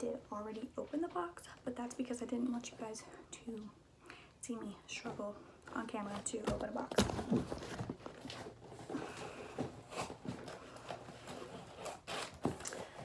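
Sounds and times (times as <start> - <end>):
cardboard box rustling and scraping: 5.8 - 13.0.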